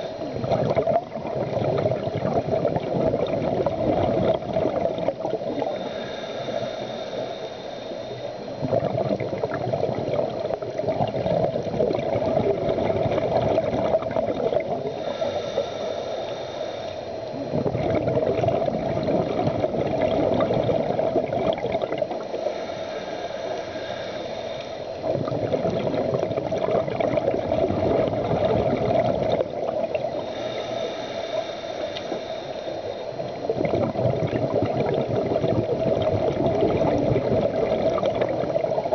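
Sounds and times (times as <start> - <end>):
regulator hissing inhale: 0.0 - 0.5, 5.4 - 8.6, 14.7 - 17.6, 20.5 - 25.4, 29.5 - 33.5
bubbling exhale: 0.0 - 38.9.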